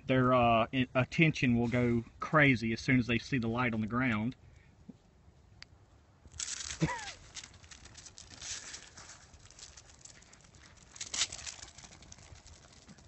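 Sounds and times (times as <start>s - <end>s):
dog paws scrabbling on concrete: 6.3s - 13.0s.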